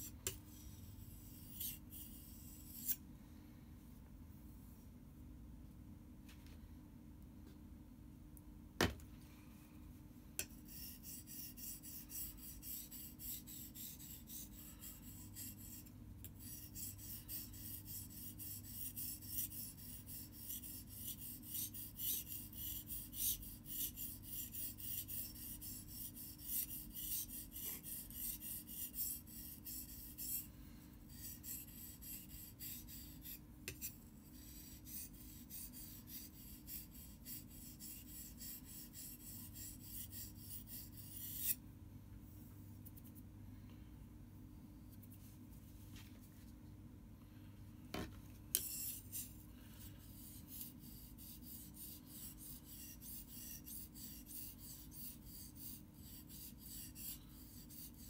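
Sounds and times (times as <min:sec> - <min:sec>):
knife scraping on whetstone: 0:00.0 - 0:03.0, 0:10.7 - 0:30.5, 0:31.1 - 0:41.6, 0:48.5 - 0:49.3, 0:50.2 - 0:58.0.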